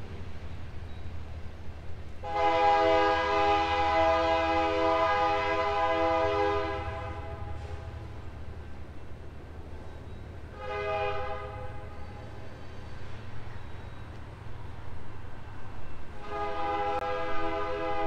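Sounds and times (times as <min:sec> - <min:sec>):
train air horn blast: 0:02.2 - 0:08.0, 0:10.5 - 0:12.0, 0:16.2 - 0:18.0.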